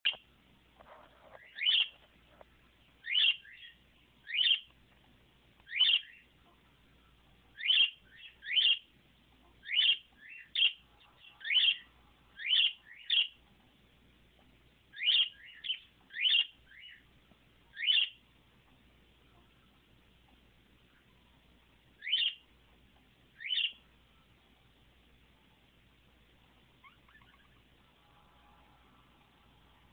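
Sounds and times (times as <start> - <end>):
budgie chirping: 1.4 - 2.0, 3.0 - 4.8, 5.6 - 6.7, 7.5 - 13.4, 14.9 - 17.1, 17.7 - 18.3, 22.0 - 22.5, 23.3 - 23.9, 26.7 - 28.0.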